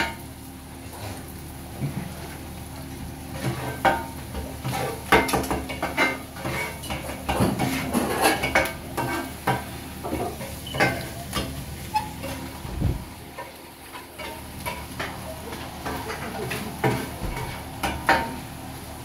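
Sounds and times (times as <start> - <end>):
light sizzle: 0.0 - 19.0
metal spatulas clattering on griddle: 3.4 - 12.5, 13.4 - 18.4.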